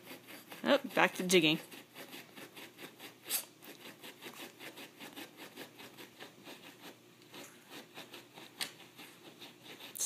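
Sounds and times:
dog claws scratching carpet: 0:00.0 - 0:10.0.

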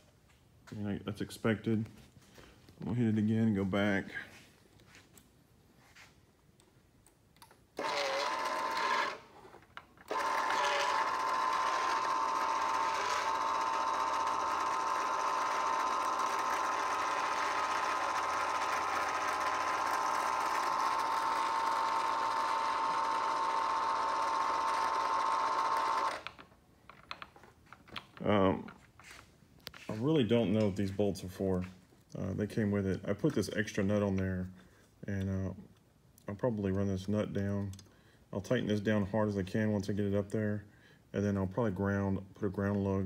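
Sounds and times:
antenna rotator motor whining: 0:07.8 - 0:26.4.

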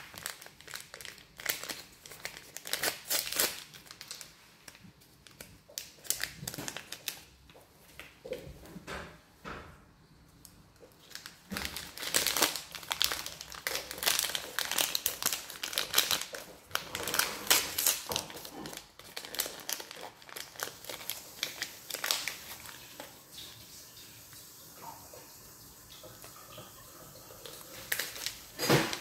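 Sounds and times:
plastic wrapper crinkling: 0:00.0 - 0:08.2, 0:10.4 - 0:23.2, 0:27.4 - 0:29.0.

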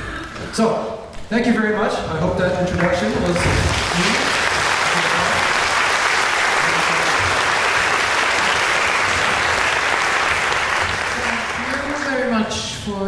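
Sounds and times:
audience applauding: 0:02.8 - 0:12.4.

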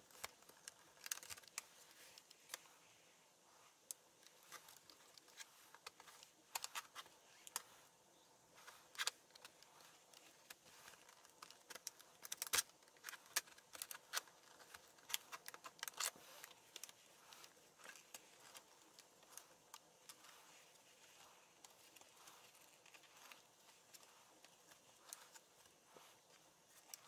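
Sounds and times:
plastic clips clicking and popping: 0:00.1 - 0:02.6, 0:08.9 - 0:20.3.

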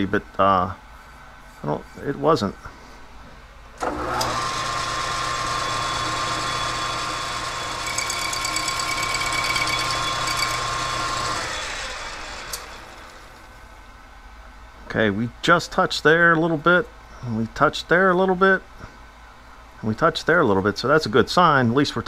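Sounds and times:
metal lathe whining: 0:03.8 - 0:13.5
lathe tool rubbing metal: 0:04.2 - 0:13.4.

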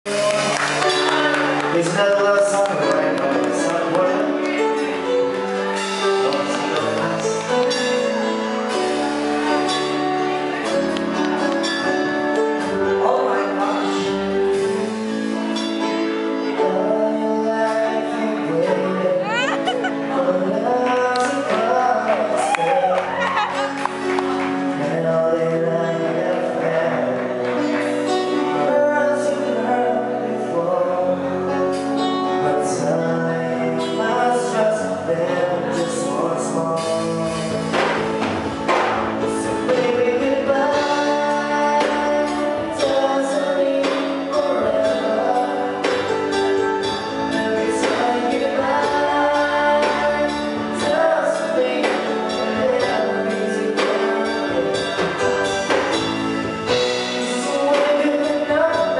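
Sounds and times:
drum kit: 0:00.0 - 0:16.7, 0:35.9 - 0:58.9
electric guitars: 0:00.0 - 0:58.9
keyboard: 0:00.0 - 0:58.9
woman singing: 0:16.7 - 0:24.0.

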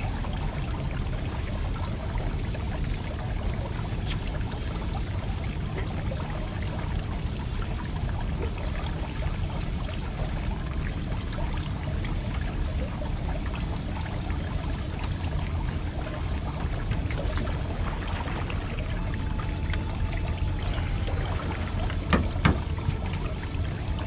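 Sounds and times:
water pouring and trickling: 0:00.0 - 0:24.0
low rumble: 0:11.4 - 0:24.0.

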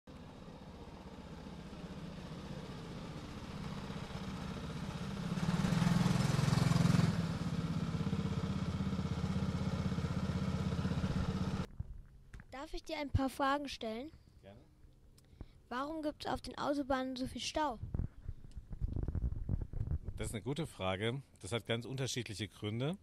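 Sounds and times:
go-kart engines running: 0:00.1 - 0:11.7.

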